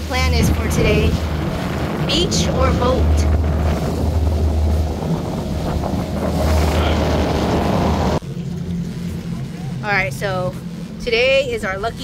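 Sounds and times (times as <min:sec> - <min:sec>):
wind noise on microphone: 0:00.0 - 0:08.2
motorboat engine drone: 0:00.0 - 0:12.0.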